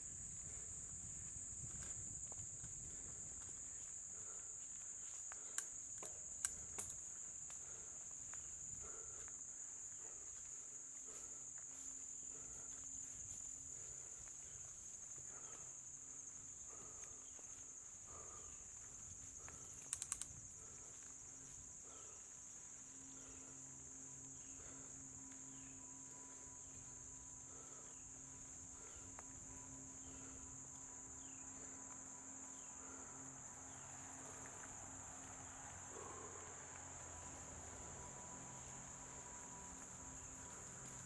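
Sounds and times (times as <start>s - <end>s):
crickets and insects chirping: 0.0s - 41.0s
sharp clicks: 5.5s - 7.0s, 19.8s - 20.3s.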